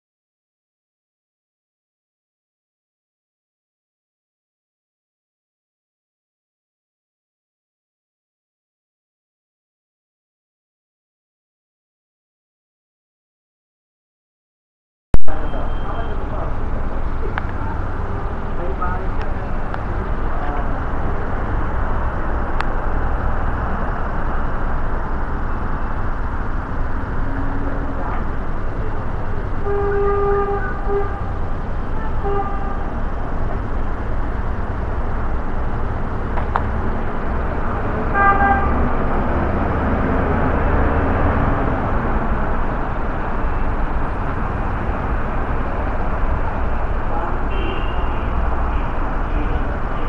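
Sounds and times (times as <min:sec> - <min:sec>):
short beeps: 0:15.2 - 0:16.2
traffic hum: 0:15.2 - 0:50.0
car horns honking: 0:29.6 - 0:33.1, 0:38.1 - 0:38.9, 0:47.5 - 0:49.7.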